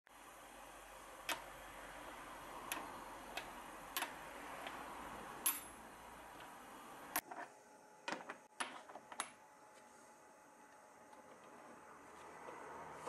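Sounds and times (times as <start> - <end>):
metal clamps clicking on metal table: 5.4 - 5.7.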